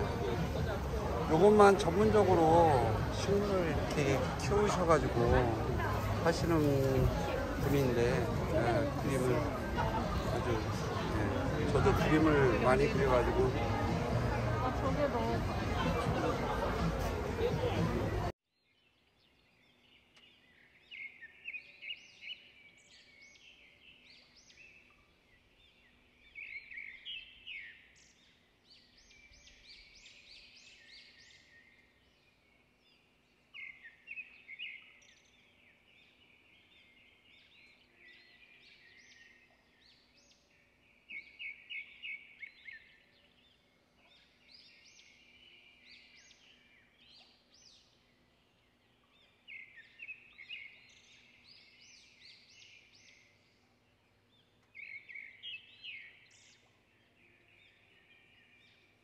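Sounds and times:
faint birdsong chirps and trills: 17.4 - 59.0.

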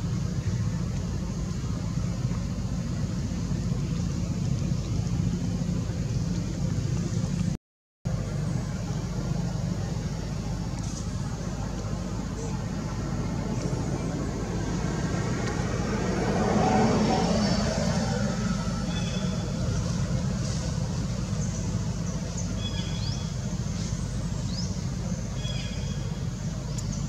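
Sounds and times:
road traffic rumble: 0.0 - 27.0
vehicle passing: 12.2 - 22.0.

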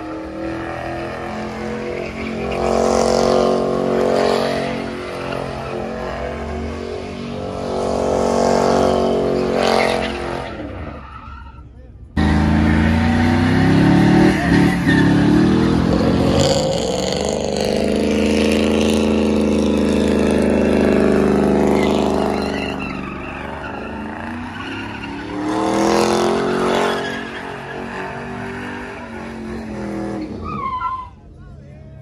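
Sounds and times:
car engine revving hard: 0.0 - 10.8, 12.2 - 22.8, 23.5 - 30.4
tyres squealing: 8.7 - 31.3.

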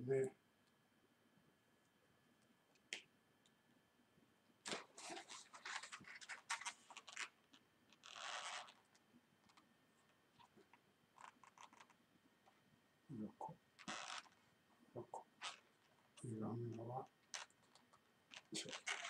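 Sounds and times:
marker scratching on balloon: 4.7 - 7.3, 8.0 - 8.9, 11.2 - 12.0, 13.8 - 14.4, 15.3 - 15.8, 17.3 - 19.0
rubber balloon rubbing and squeaking: 4.7 - 7.3, 8.0 - 8.8, 13.8 - 14.4, 18.3 - 19.0.

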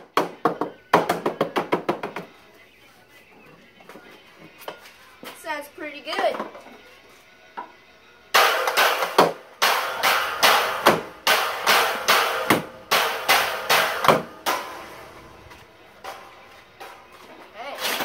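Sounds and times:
drumsticks beating a bucket: 8.4 - 17.2.

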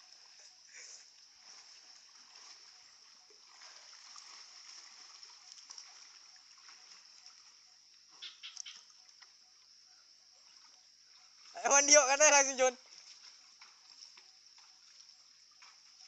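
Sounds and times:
water splashing from swimming: 0.0 - 9.6, 10.4 - 16.0.

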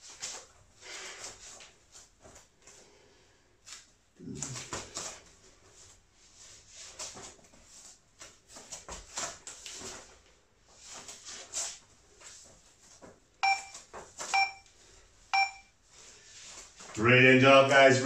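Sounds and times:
soft rustling: 0.0 - 17.0
electronic timer beeps: 13.4 - 14.7, 15.3 - 15.7.

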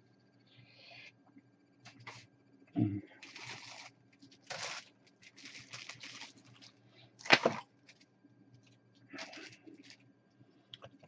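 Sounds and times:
plastic sprues rustling: 1.9 - 2.2, 3.2 - 10.0.

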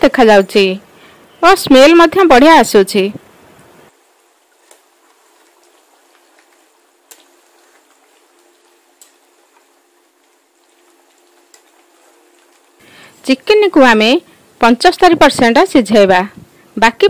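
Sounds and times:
curry bubbling: 3.6 - 16.8.

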